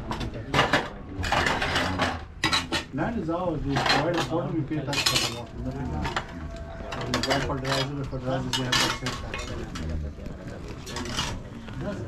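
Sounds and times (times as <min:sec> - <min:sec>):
metal tools scraping a pan: 0:06.9 - 0:09.7.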